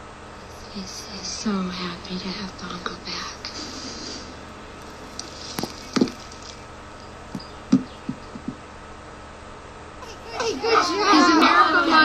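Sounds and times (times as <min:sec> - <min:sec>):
faint steady hiss: 0:00.0 - 0:09.3.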